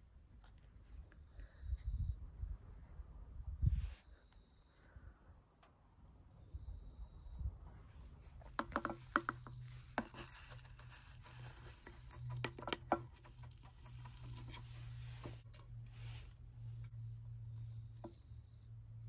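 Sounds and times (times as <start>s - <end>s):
grit and tools clicking on pot: 8.3s - 18.8s.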